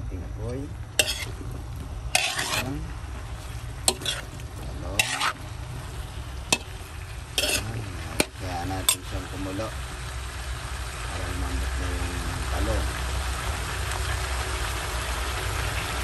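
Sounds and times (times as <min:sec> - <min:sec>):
low steady rumble: 0:00.0 - 0:16.0
metal spatula scraping a wok: 0:00.4 - 0:09.2.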